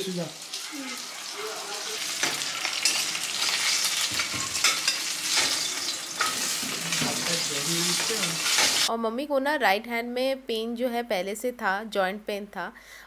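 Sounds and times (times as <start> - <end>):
food sizzling in hot oil: 0.0 - 8.9
spatula scraping a pan: 0.5 - 8.9.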